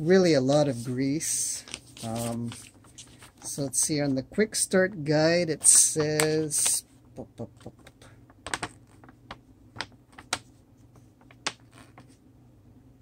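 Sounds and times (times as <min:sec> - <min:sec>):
paper leaflet crackling: 0:01.6 - 0:04.2.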